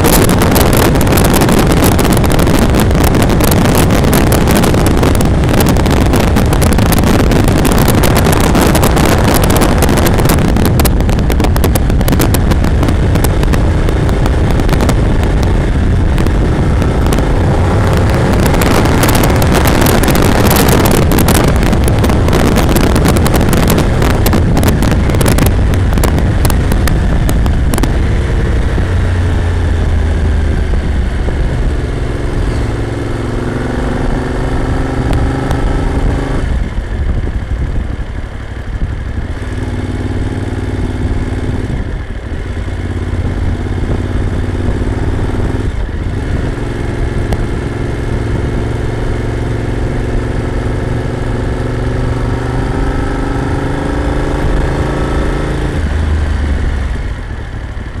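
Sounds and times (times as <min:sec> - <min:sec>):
motorcycle engine accelerating: 0:00.0 - 0:58.0
steady low rumble: 0:00.0 - 0:58.0.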